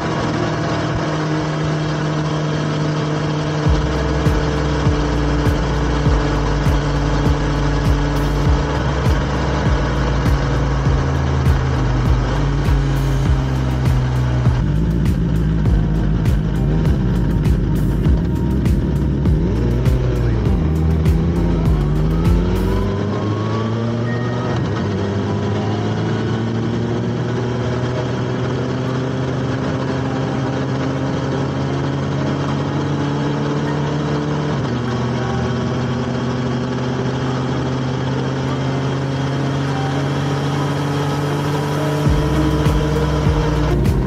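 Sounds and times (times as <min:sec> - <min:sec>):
motorcycle engine cruising: 0:00.0 - 0:44.0
motorcycle engines revving: 0:00.0 - 0:44.0
wind and road noise: 0:00.0 - 0:44.0.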